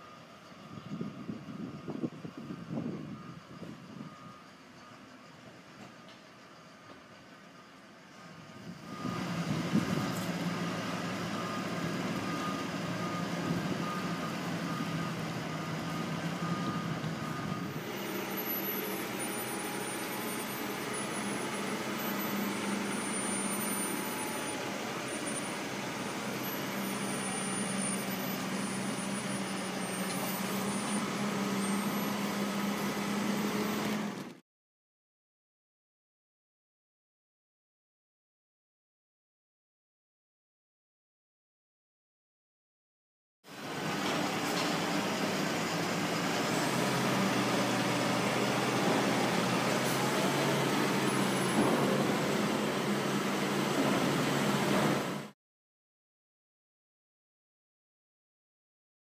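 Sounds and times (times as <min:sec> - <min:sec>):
forklift engine droning: 0:00.0 - 0:34.4, 0:43.5 - 0:55.3.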